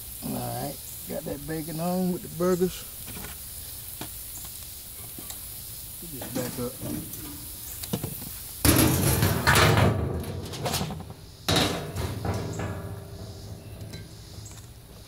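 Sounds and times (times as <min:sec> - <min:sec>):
metal lid clanging: 0:08.6 - 0:14.7
metal lid scraping: 0:08.6 - 0:14.7.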